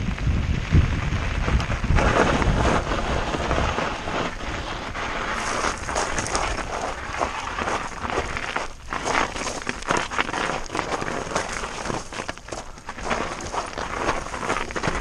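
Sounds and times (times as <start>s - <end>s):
wind buffeting microphone: 0.0s - 10.0s
bike rattling over bumps: 0.0s - 15.0s
tyres crunching over gravel: 1.4s - 15.0s.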